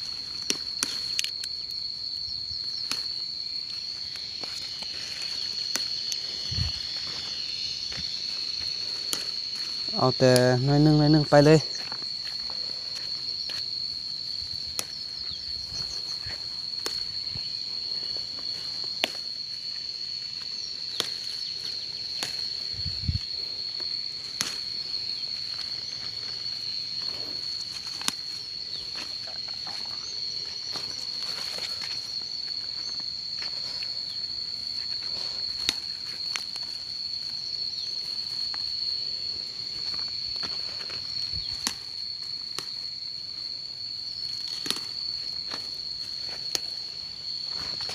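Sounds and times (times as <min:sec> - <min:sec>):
insects droning: 0:00.0 - 0:47.9.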